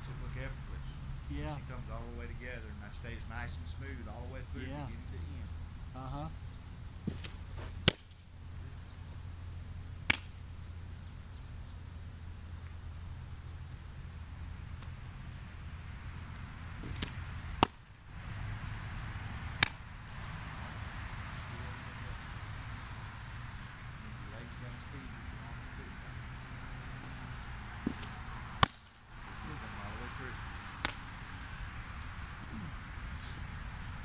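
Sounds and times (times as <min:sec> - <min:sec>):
high-pitched insect chorus: 0:00.0 - 0:34.0
softball smacking into glove: 0:07.0 - 0:08.2, 0:10.0 - 0:10.3, 0:16.8 - 0:17.8, 0:19.6 - 0:19.8, 0:27.8 - 0:28.9, 0:30.8 - 0:31.2.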